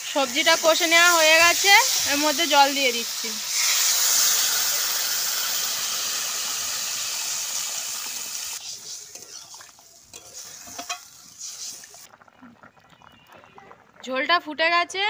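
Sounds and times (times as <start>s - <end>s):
water sizzling in hot oil: 0.0s - 14.4s
metal spatula scraping: 8.6s - 11.9s.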